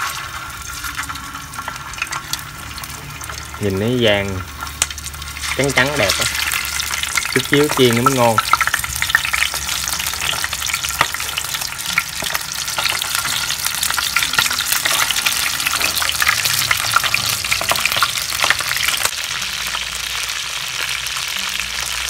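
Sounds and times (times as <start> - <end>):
frying oil sizzling and popping: 0.0 - 22.0.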